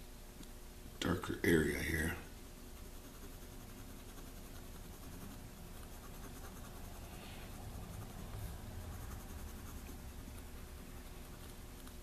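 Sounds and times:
pencil scratching on paper: 0:02.7 - 0:12.0.

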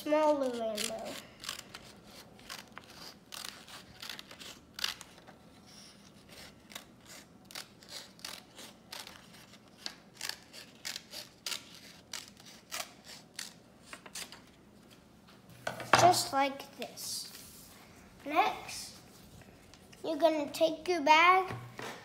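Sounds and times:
scissors snipping paper: 0:00.2 - 0:05.4, 0:06.0 - 0:14.4.

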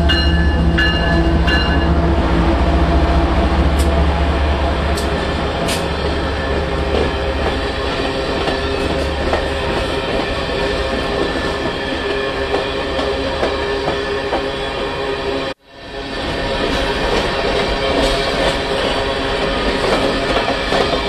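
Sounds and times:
locomotive engine hum: 0:00.0 - 0:11.3
train wheels rumbling on rail: 0:00.0 - 0:21.0
rail clicks: 0:03.1 - 0:14.5, 0:16.3 - 0:21.0.

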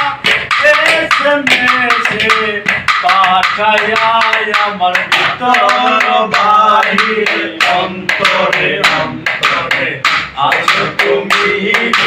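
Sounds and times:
hand tapping on plastic plate: 0:00.0 - 0:12.0
man singing: 0:00.0 - 0:12.0.

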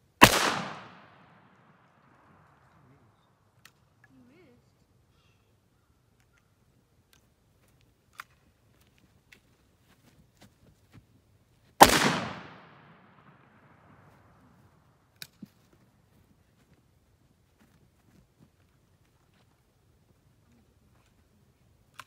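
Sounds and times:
loud gunshot: 0:00.2 - 0:01.4, 0:11.8 - 0:13.4.

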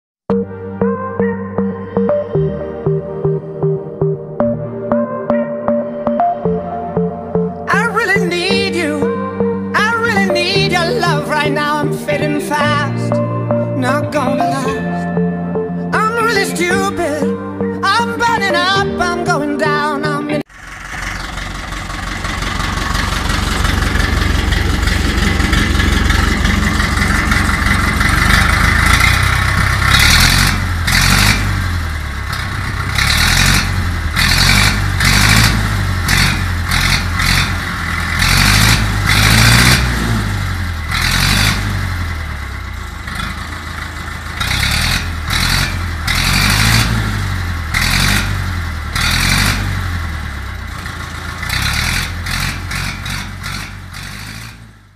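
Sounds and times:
diesel engine revving: 0:01.6 - 0:54.9.

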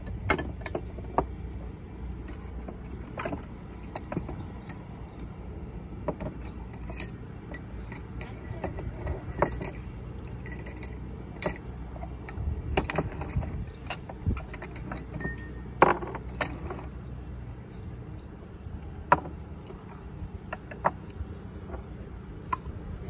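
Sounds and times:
coffee tools clinking: 0:06.1 - 0:16.9.

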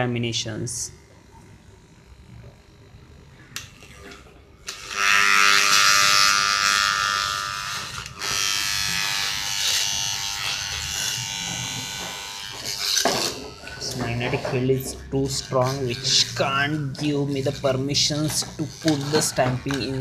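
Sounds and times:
metal stamping buzzing on transformer: 0:10.4 - 0:14.9.

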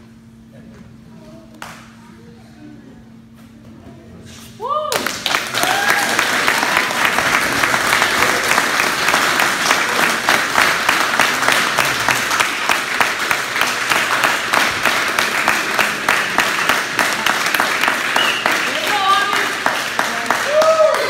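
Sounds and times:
people clapping: 0:04.9 - 0:21.0.

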